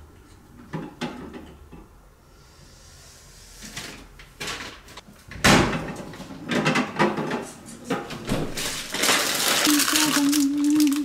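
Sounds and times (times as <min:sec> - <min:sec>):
household things knocking and clattering: 0:05.4 - 0:09.9.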